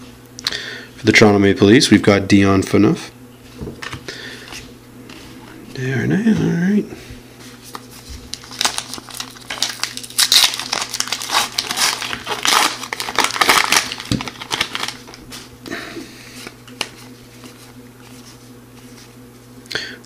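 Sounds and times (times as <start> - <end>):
soft wrapper rustles: 7.7 - 15.5
plastic wrapper crackling: 8.3 - 15.5.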